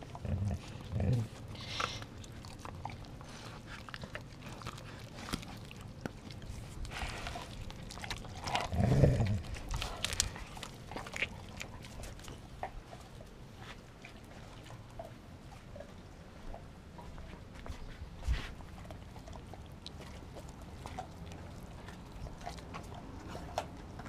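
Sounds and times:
dogs chewing and crunching bones: 0.0s - 24.0s.

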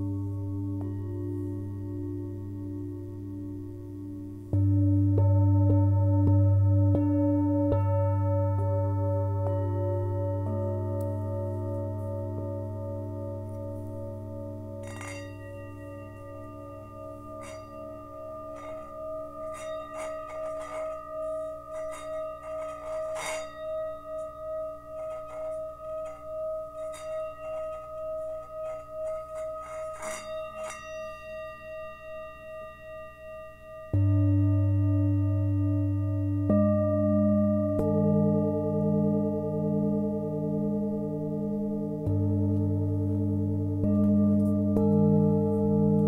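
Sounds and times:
large bowl struck deep hum: 0.0s - 46.0s
singing bowl ringing tone: 0.0s - 46.0s
stick scratching bowl rim: 14.8s - 31.1s.

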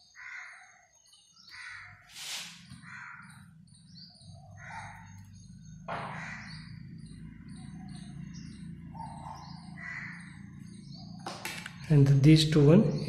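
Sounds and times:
crow cawing: 0.0s - 0.8s, 1.4s - 11.0s
small birds chirping: 0.0s - 13.0s.

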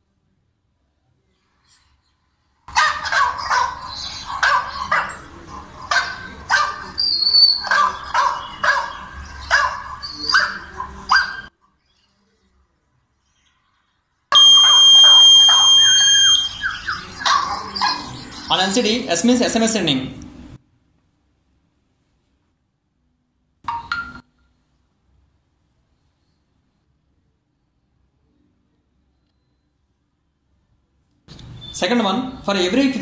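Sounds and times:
recorded dog barking from phone: 2.7s - 11.5s, 14.3s - 18.5s
piezo buzzer high beep: 14.4s - 16.6s.

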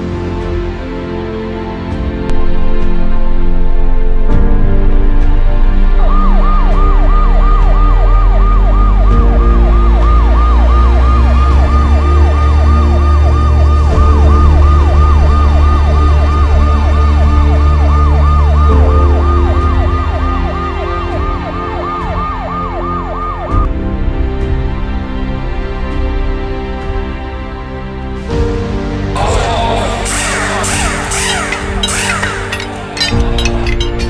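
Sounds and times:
background music: 0.0s - 34.0s
emergency vehicle siren yelping: 5.8s - 23.8s, 30.1s - 34.0s.

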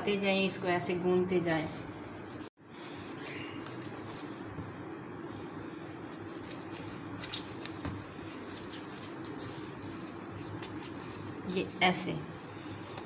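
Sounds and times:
hands kneading dough: 2.7s - 13.0s.

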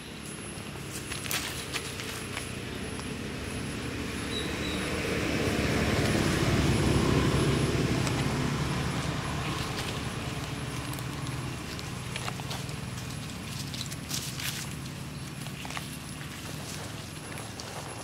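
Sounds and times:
engine passing by: 0.0s - 18.0s.

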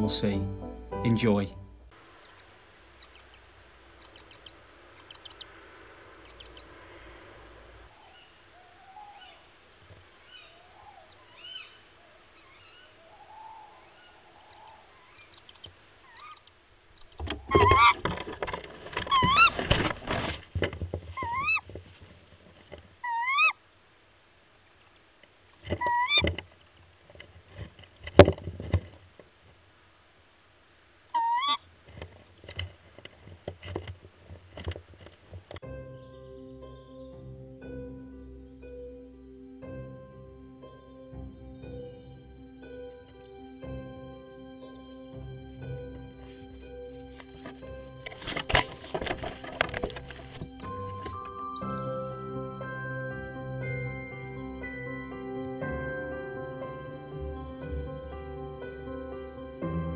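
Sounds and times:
faint peeping calls: 2.1s - 18.0s
owl scuffling and rustling: 7.9s - 23.5s, 47.3s - 51.5s.

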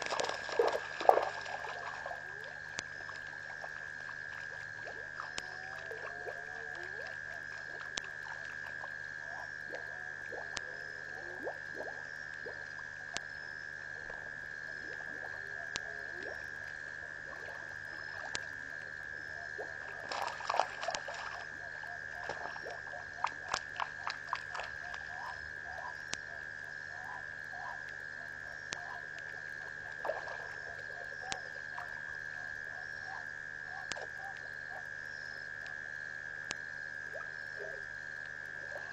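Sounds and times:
quick clicks and splashes: 0.0s - 8.9s, 19.9s - 21.6s, 22.2s - 25.4s, 29.9s - 30.6s
steady high-pitched drone: 0.0s - 37.9s
frogs croaking and trilling: 0.0s - 38.9s.

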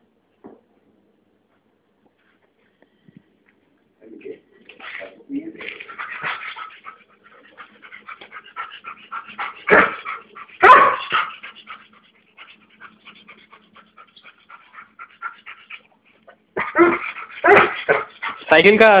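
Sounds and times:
dogs crying: 5.8s - 12.0s, 12.6s - 18.6s.

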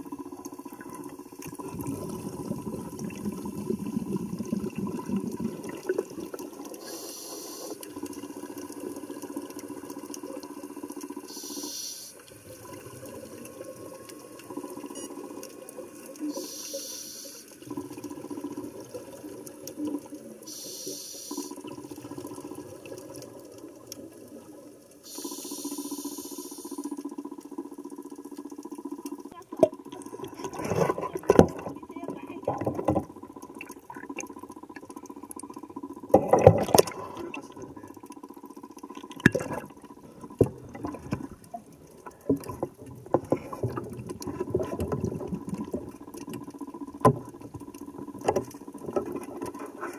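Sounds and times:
hissing rushes of bubbles: 0.0s - 10.6s, 15.9s - 27.1s
muffled underwater sea water: 0.0s - 49.9s.

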